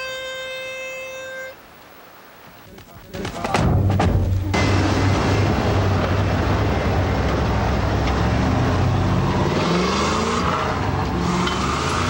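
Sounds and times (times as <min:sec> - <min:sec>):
motor vehicle engine running: 0:03.2 - 0:09.5.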